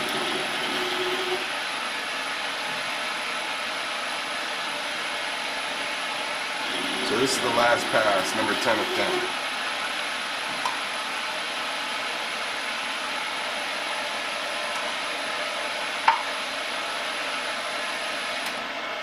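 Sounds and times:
metal lathe running: 0.0 - 1.6, 5.2 - 9.7.

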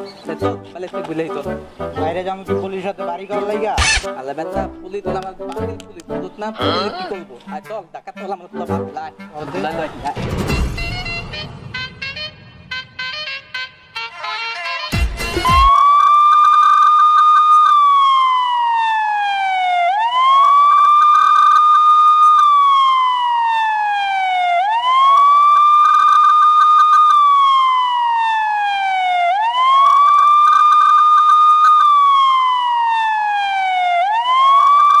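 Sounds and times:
police siren wailing: 15.3 - 35.0.

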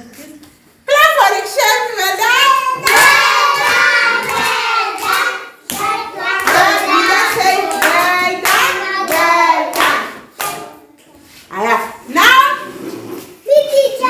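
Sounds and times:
children singing together: 2.5 - 10.9
children clapping hands: 2.8 - 10.7.

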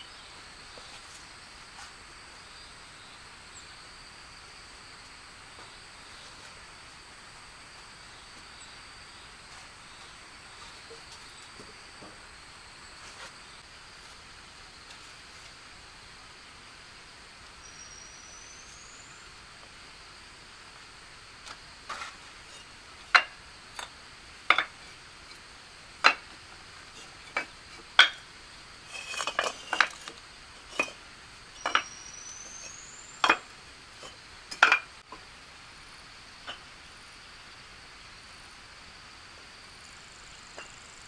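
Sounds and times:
hard objects clinking and tapping: 28.9 - 30.1, 30.7 - 31.0, 31.6 - 31.9.

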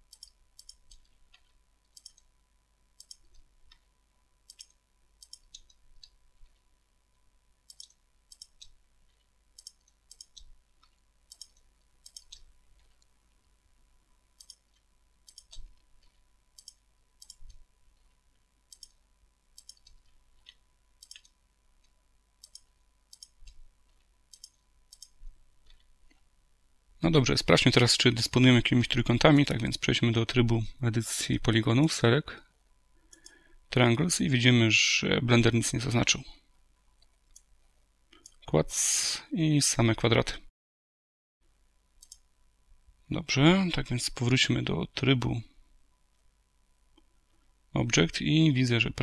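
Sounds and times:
mouse and keyboard clicks: 0.1 - 2.3, 3.0 - 3.9, 4.5 - 6.6, 7.7 - 13.1, 14.4 - 19.0, 19.6 - 26.2.

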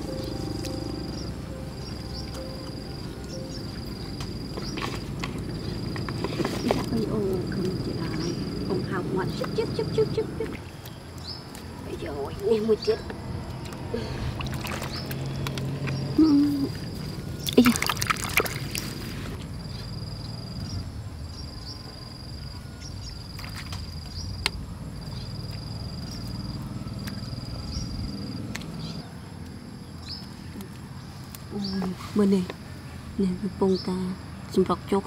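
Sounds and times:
hands digging in wet mud: 13.6 - 16.7, 17.4 - 19.4.

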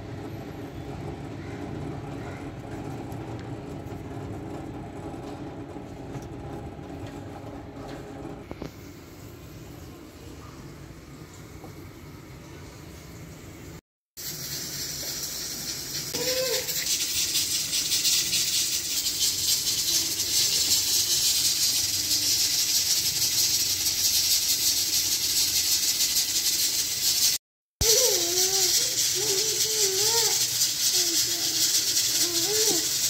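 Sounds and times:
steady hissing with rattling: 14.2 - 33.0.

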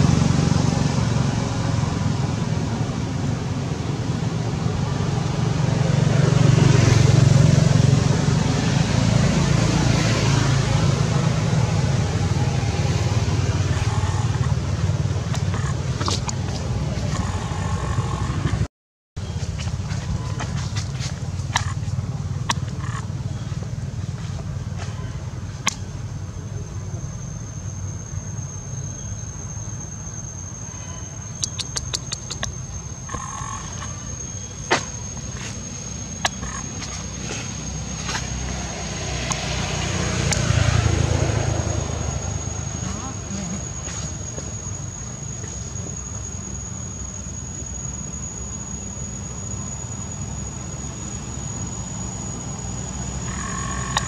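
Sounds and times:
low engine rumble: 0.0 - 54.0
high-pitched insect drone: 0.5 - 18.6, 26.0 - 54.0
sharp clicks: 31.4 - 33.9.

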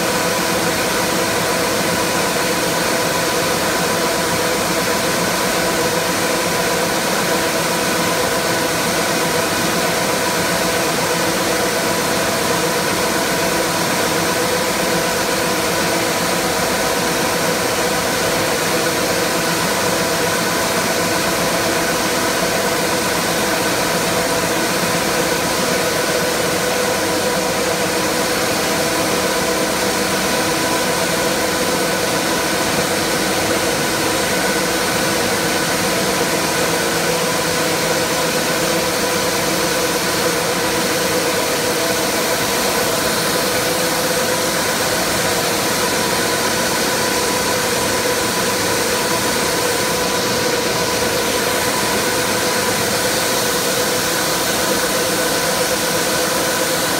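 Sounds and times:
factory machinery humming: 0.0 - 56.9.

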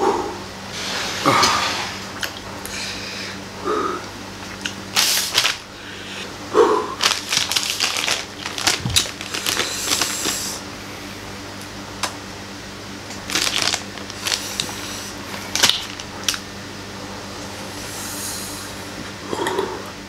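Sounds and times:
faint steady hum: 0.0 - 20.0
plastic packet crinkling: 5.0 - 5.6, 7.0 - 10.6, 13.2 - 16.4.

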